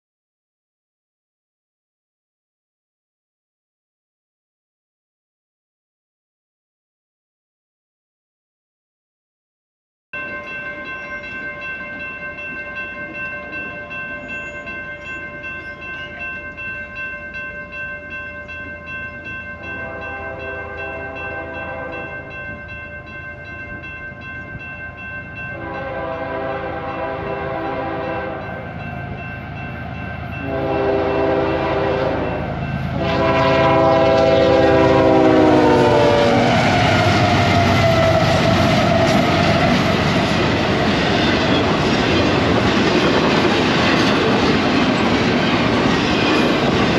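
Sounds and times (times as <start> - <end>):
steady high ringing tone: 10.2 - 26.3, 26.9 - 33.0
train rumble: 11.2 - 46.9
locomotive air horn blasts: 19.7 - 22.1, 25.6 - 28.7, 30.4 - 39.1.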